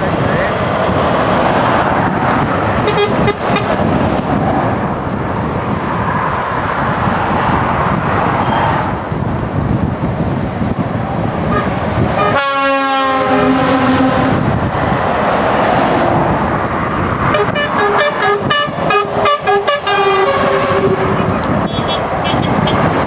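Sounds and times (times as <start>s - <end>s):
traffic rumble: 0.0s - 23.0s
wind noise: 0.0s - 23.0s
lorry horns: 11.5s - 14.4s, 17.3s - 22.9s.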